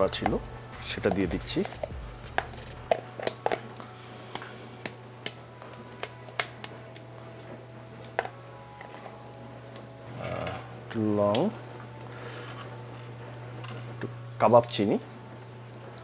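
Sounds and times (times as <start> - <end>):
utensils clicking on metal pot: 0.0 - 3.7
steady low hum: 0.0 - 16.0.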